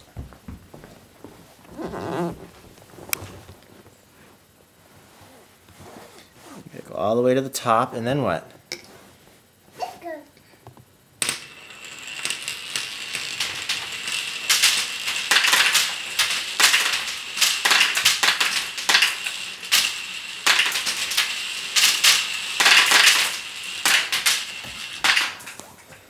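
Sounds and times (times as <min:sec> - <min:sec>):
marbles clicking and knocking: 0:11.2 - 0:25.4
marbles rolling down plastic track: 0:11.2 - 0:25.6.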